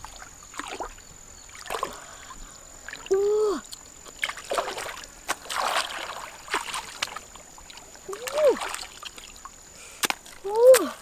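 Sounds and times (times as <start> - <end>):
hands splashing in shallow water: 4.2 - 9.3.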